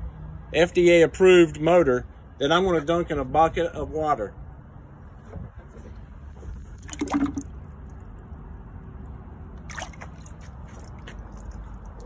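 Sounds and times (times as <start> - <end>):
water sloshing in a bucket: 5.9 - 12.0
water dripping and trickling: 6.6 - 12.0.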